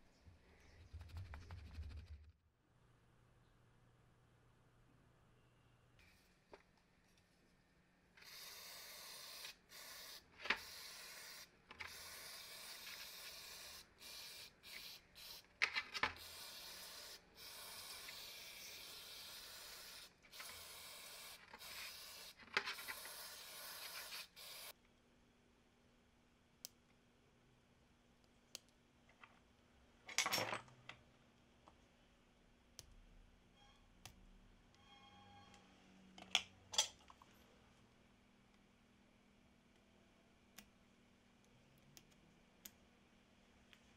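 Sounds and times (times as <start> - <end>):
aerosol spray can hissing: 8.2 - 15.5, 16.2 - 24.7.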